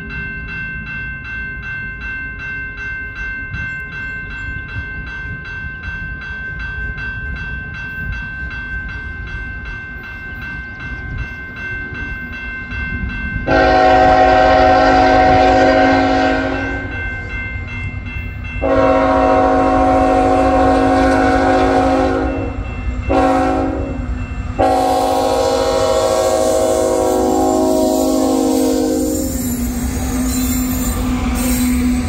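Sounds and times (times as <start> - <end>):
train horn blasts: 13.4 - 17.0, 18.6 - 29.7.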